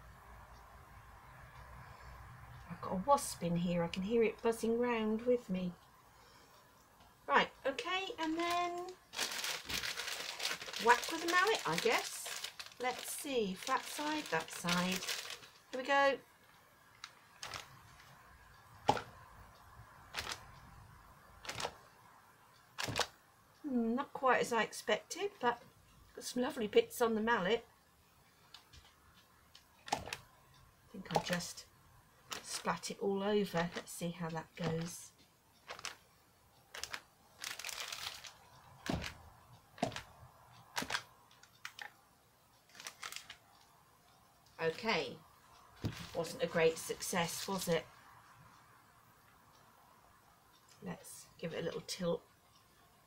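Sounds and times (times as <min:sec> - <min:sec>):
plastic bag crinkling: 0:08.0 - 0:15.9, 0:17.0 - 0:17.8, 0:20.2 - 0:20.4, 0:21.4 - 0:21.8, 0:22.8 - 0:23.1, 0:29.9 - 0:30.2, 0:32.3 - 0:32.7, 0:33.5 - 0:33.9, 0:34.6 - 0:34.9, 0:35.7 - 0:36.0, 0:36.7 - 0:39.2, 0:39.8 - 0:40.1, 0:40.7 - 0:41.9, 0:42.7 - 0:43.4, 0:45.8 - 0:46.4.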